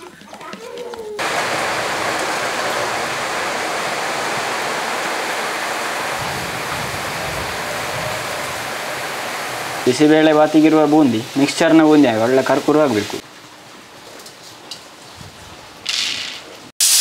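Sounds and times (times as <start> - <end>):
batter sizzling in hot oil: 16.8 - 17.0.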